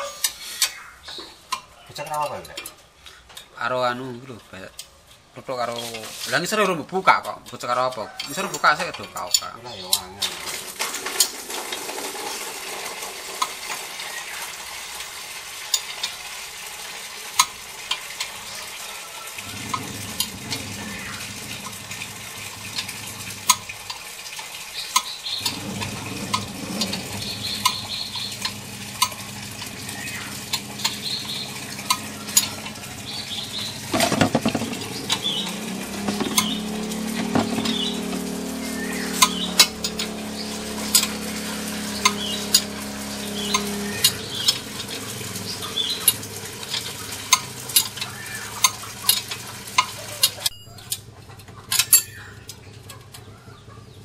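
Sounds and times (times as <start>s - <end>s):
low steady hum: 19.4s - 24.0s, 25.4s - 48.1s
metal tools clinking: 39.1s - 52.6s.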